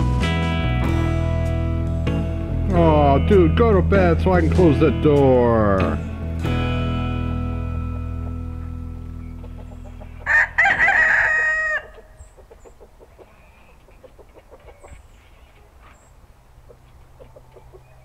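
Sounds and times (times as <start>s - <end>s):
faint clucking: 9.2s - 10.3s, 11.8s - 18.0s
rooster crowing: 9.8s - 12.2s.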